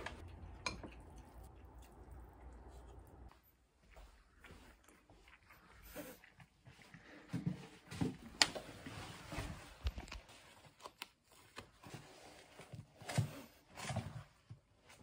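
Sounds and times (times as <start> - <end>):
clothing and backpack rustling: 3.5 - 15.0.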